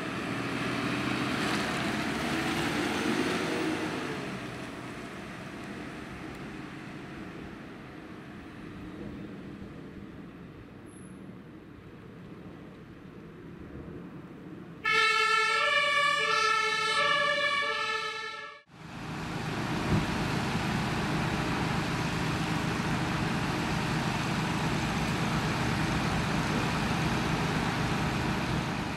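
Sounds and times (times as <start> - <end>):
two-tone emergency siren: 14.8 - 18.7.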